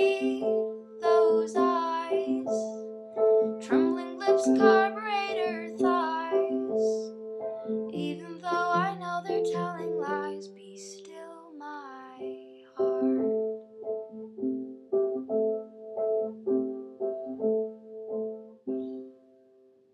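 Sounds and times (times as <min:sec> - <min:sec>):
woman singing slow song: 0:00.0 - 0:02.8, 0:03.6 - 0:07.1, 0:07.9 - 0:13.2
piano broken chords: 0:12.2 - 0:19.4.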